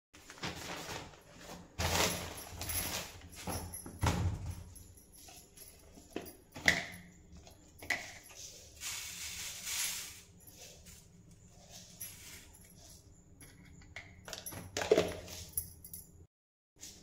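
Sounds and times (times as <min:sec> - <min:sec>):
seeds pouring into tin: 0:08.5 - 0:10.8
jar clicks and knocks: 0:13.4 - 0:15.4.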